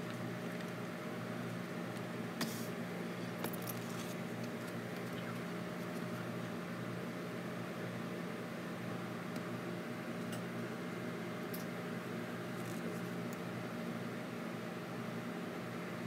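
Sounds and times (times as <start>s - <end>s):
room hum and hiss: 0.0s - 16.0s.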